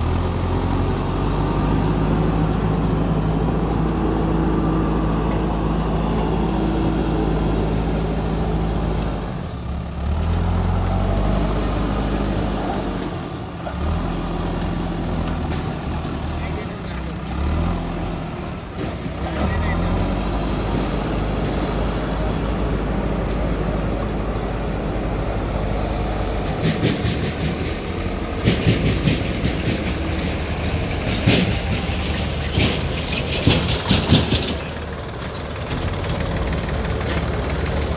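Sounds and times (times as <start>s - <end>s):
diesel engines droning: 0.0s - 37.9s
rattling clanking knocks: 26.4s - 36.0s.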